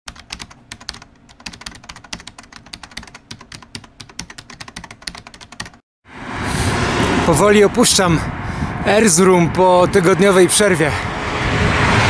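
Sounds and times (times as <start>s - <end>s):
fast typing on keyboard: 0.1s - 5.8s.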